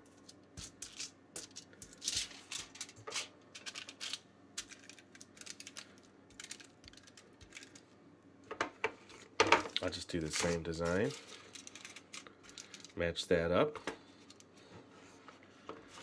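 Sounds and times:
aluminium foil crinkling: 0.0 - 7.9, 9.1 - 13.0.

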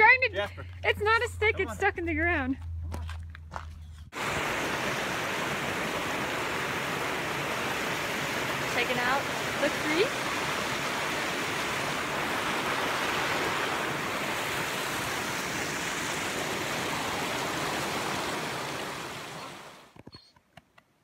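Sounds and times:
water tumbling over boulders: 4.2 - 19.9.

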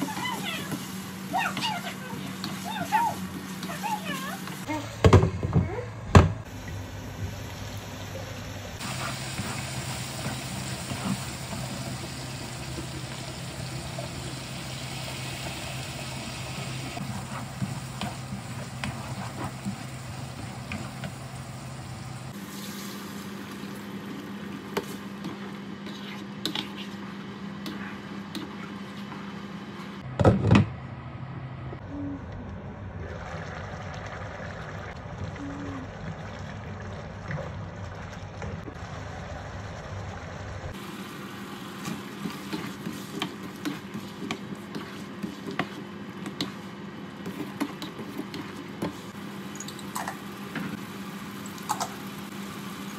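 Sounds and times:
curry simmering and sizzling: 6.5 - 28.7, 33.0 - 52.9
spatula stirring in wok: 41.8 - 49.2.

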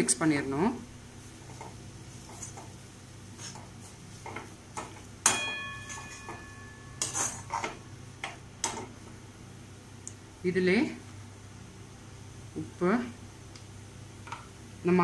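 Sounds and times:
pan ringing: 5.2 - 7.5
metal spoon scraping pan: 5.7 - 7.8.

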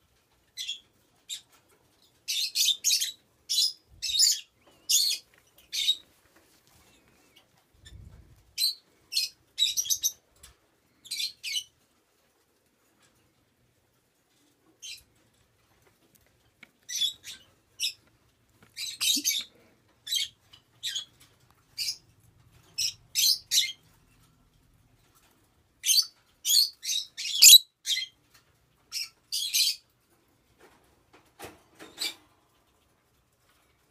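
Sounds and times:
lovebird chirping: 25.8 - 28.1.

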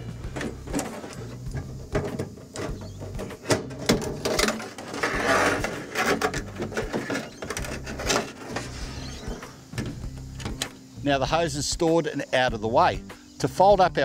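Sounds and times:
hose rubbing scrape: 0.0 - 10.2
hose clicking and knocking on metal: 0.2 - 10.8.

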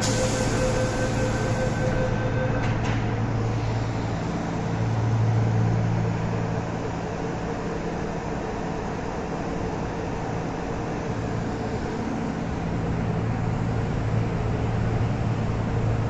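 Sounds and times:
train doors shutting with knocks: 0.0 - 3.3
door-closing warning tone: 0.0 - 3.5
train traction motors humming: 0.0 - 16.0.

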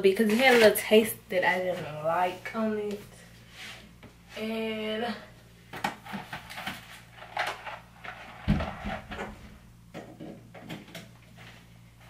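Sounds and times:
items clattering in cupboard: 5.7 - 11.7.

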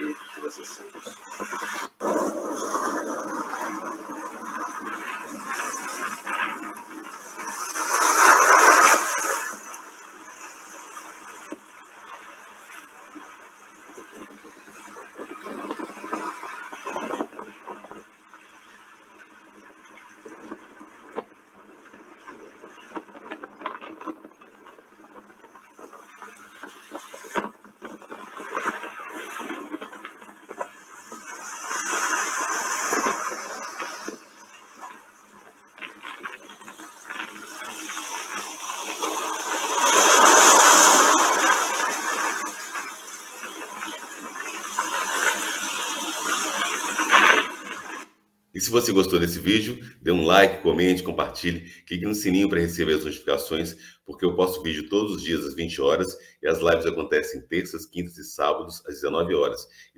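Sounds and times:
waves splashing against rocks: 2.0 - 11.4, 30.8 - 35.0, 35.8 - 48.1.

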